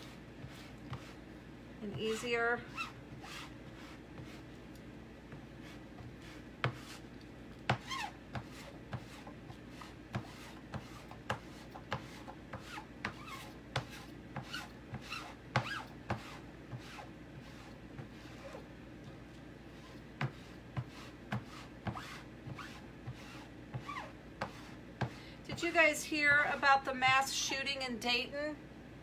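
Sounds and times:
squeegee scraping paste on mesh: 7.7s - 18.6s.

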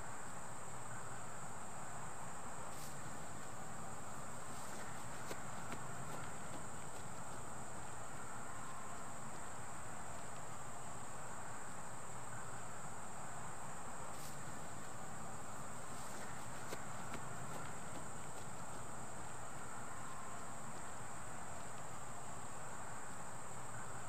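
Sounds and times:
crickets trilling: 0.0s - 24.0s
soft even hiss: 0.0s - 24.0s.

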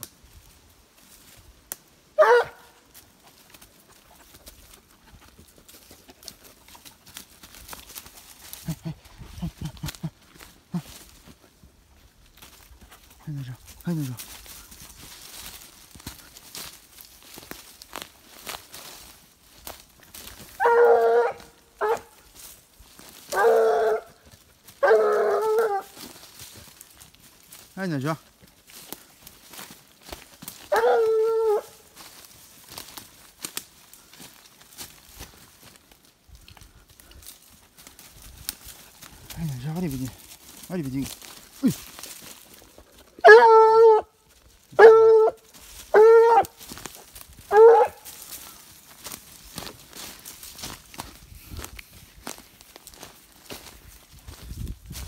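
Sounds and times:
dog yelp: 2.2s - 2.8s, 20.6s - 22.1s, 23.3s - 24.1s, 24.8s - 26.0s, 30.7s - 31.8s, 43.2s - 44.1s, 44.8s - 46.6s, 47.5s - 48.1s
hound baying: 2.2s - 2.8s, 20.4s - 22.3s, 23.2s - 26.2s, 30.5s - 31.8s, 43.0s - 48.4s.

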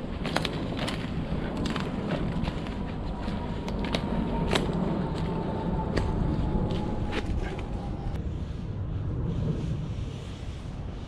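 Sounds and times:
footsteps crunching through leaves: 0.0s - 7.7s
twigs snapping: 0.0s - 7.7s
wind rumbling on microphone: 0.0s - 11.0s.

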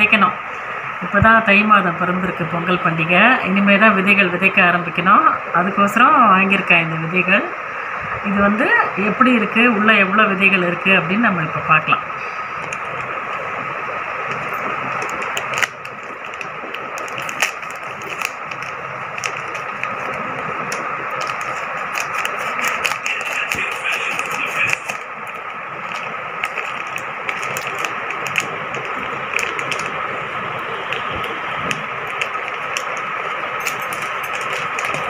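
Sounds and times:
faint hum: 0.0s - 35.0s
plastic mailer bag crinkling and tearing: 14.2s - 35.0s.

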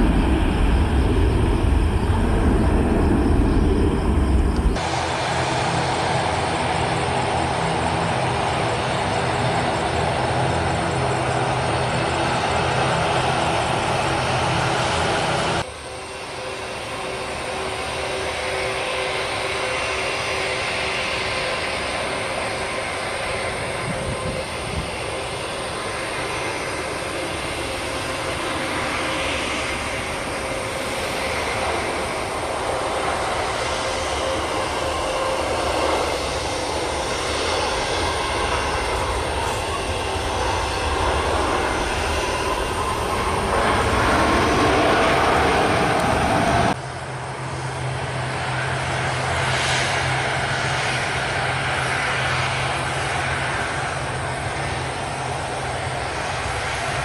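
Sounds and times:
jet airliner landing: 0.0s - 57.0s
jet rolling on runway: 0.0s - 57.0s.

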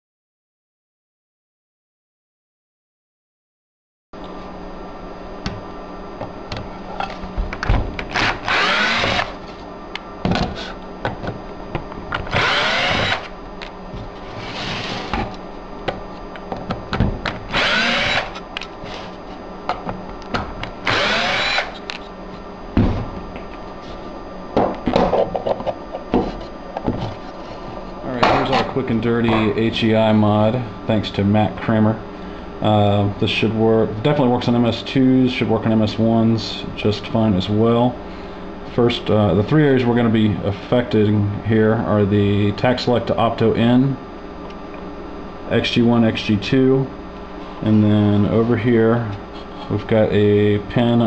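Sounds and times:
steady low hum: 4.2s - 51.0s
power driver whirring: 7.6s - 9.6s, 12.1s - 13.4s, 17.3s - 19.1s, 20.3s - 22.0s.

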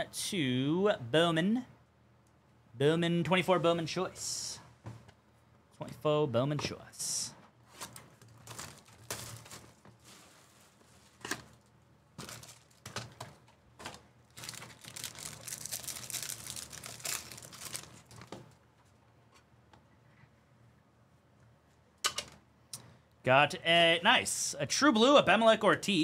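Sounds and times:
foil wrapper crinkling and tearing: 8.3s - 10.0s, 12.2s - 12.9s, 13.8s - 18.4s.

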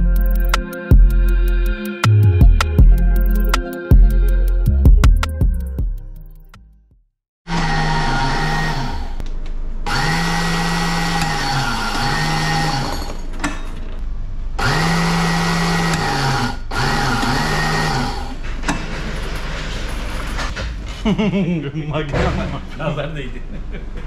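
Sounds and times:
seaming machine motor running: 14.6s - 18.3s.

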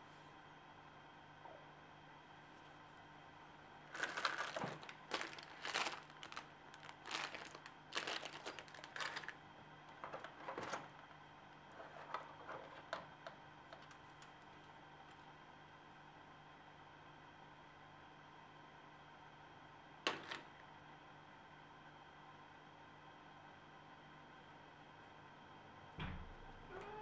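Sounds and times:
plastic bag crinkling: 3.8s - 11.1s, 13.7s - 14.7s
clicks of plastic parts: 12.1s - 14.8s.

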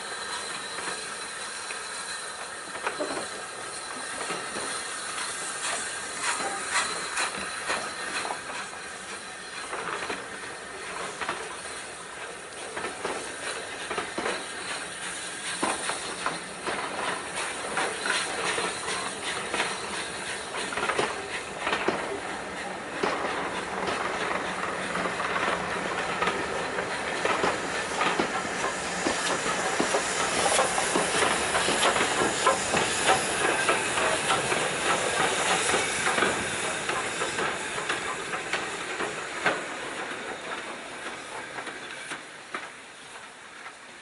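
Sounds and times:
faint wheel squeal: 0.0s - 21.5s
steam hissing: 0.0s - 44.0s
train wheels clicking over rail joints: 0.0s - 44.0s.

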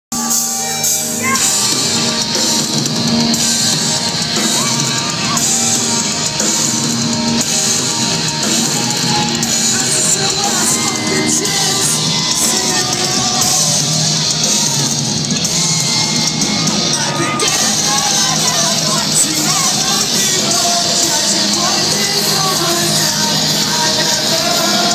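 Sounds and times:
person singing and shouting: 0.1s - 2.6s, 4.0s - 6.8s, 8.2s - 14.2s, 16.5s - 24.9s
drums: 0.1s - 24.9s
electric guitars: 0.2s - 24.9s.

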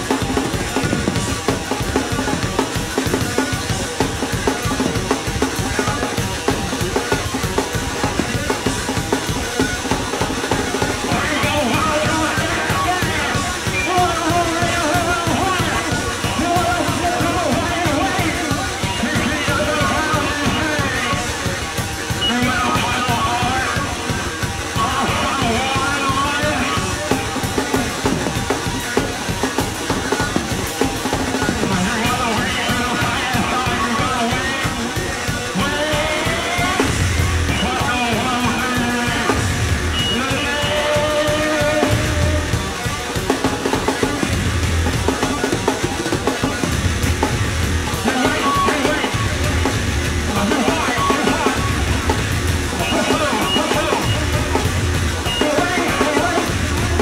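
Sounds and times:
fast dense drumming: 0.0s - 57.0s
loud low bass notes: 31.2s - 57.0s.

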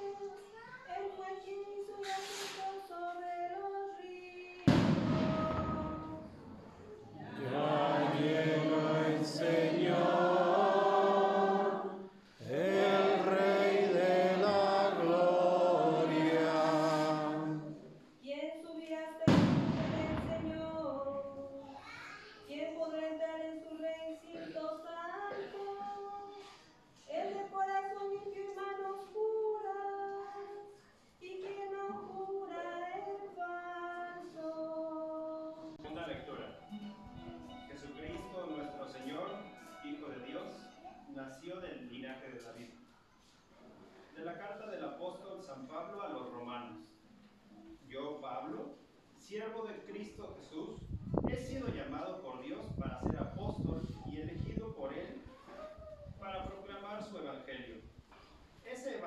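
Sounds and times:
psalm singing: 2.0s - 18.0s, 19.2s - 21.6s.

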